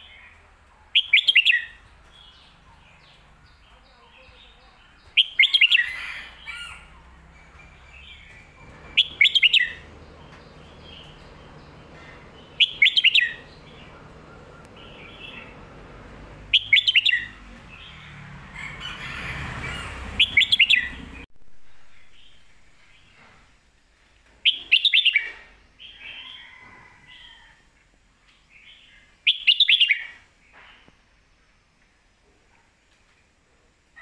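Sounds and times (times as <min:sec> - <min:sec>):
bird warbling song: 0:00.0 - 0:18.1, 0:19.8 - 0:23.2, 0:24.4 - 0:27.4, 0:28.6 - 0:30.9.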